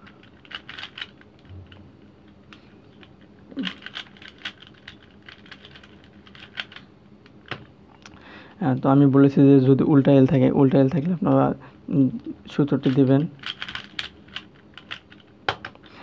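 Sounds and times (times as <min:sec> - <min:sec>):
plastic puzzle cube clicking: 0:00.2 - 0:01.2, 0:12.8 - 0:15.1.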